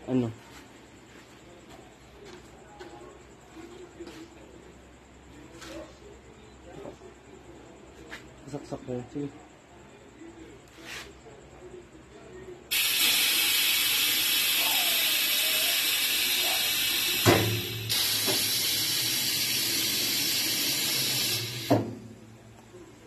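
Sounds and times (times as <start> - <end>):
compressed air hissing: 12.7 - 22.0
sharp machine knocks: 17.2 - 18.5, 21.6 - 22.0.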